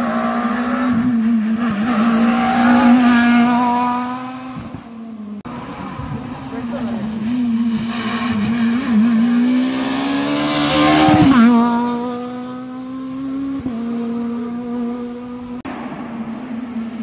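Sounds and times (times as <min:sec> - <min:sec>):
rally car engine passing by: 0:05.5 - 0:17.0.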